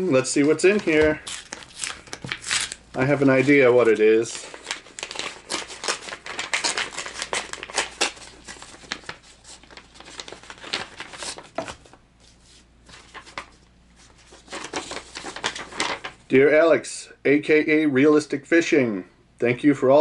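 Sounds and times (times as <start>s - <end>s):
paper envelope rustling and tearing: 0.2s - 16.2s.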